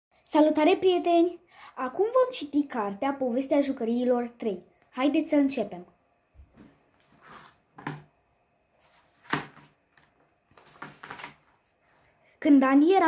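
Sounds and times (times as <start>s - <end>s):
page turning swish: 6.5s - 7.6s, 8.8s - 12.0s
book cover knocks on table: 7.8s - 8.1s, 9.2s - 9.7s.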